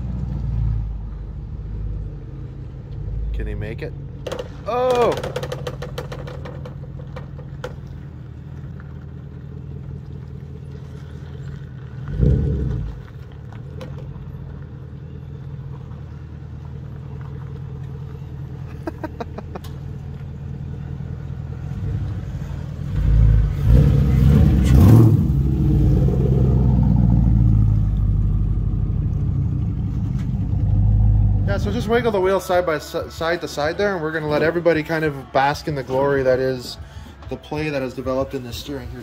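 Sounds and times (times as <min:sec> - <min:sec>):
suv engine running: 0:00.0 - 0:39.0
engine revving: 0:12.0 - 0:13.1, 0:21.6 - 0:32.2.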